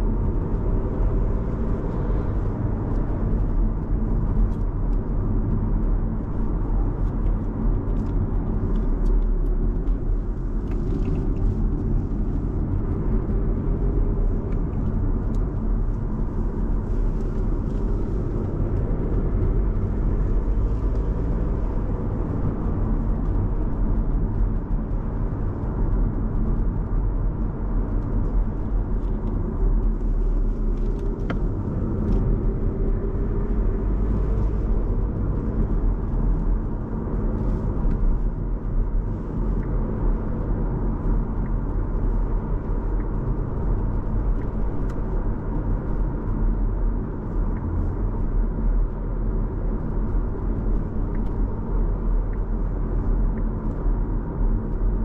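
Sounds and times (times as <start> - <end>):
car engine rumble: 0.0 - 55.0
tyres on road: 0.0 - 55.0.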